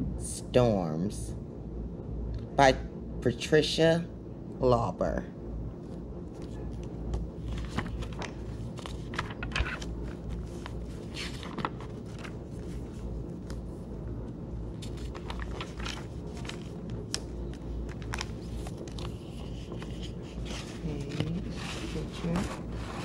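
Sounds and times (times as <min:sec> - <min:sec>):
steady low hum: 0:00.0 - 0:23.0
book pages rustling and turning: 0:05.8 - 0:13.9, 0:14.7 - 0:23.0.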